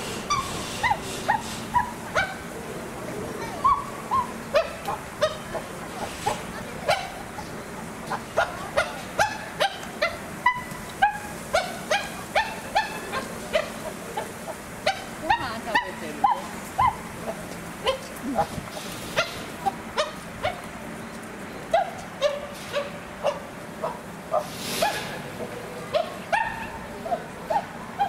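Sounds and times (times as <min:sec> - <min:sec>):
animal yelping calls: 0:00.2 - 0:02.5, 0:03.4 - 0:07.3, 0:08.2 - 0:20.6, 0:25.9 - 0:28.0.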